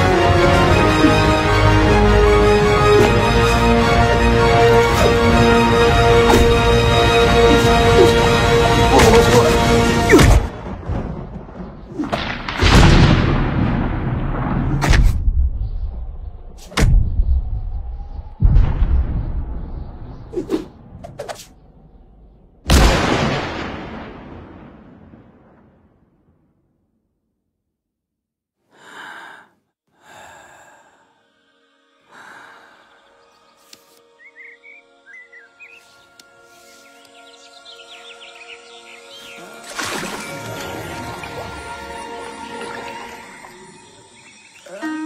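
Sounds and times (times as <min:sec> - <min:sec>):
sharp thunder cracks: 0:10.1 - 0:21.1, 0:22.7 - 0:26.4
loud boom: 0:10.3 - 0:15.8, 0:18.4 - 0:20.2, 0:22.7 - 0:26.4
woman breathing: 0:28.7 - 0:31.4, 0:32.1 - 0:33.1.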